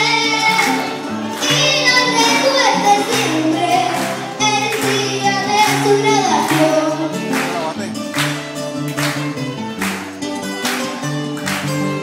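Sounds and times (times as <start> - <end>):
girl singing into microphone: 0.0 - 7.2
strummed acoustic guitars: 0.0 - 12.0.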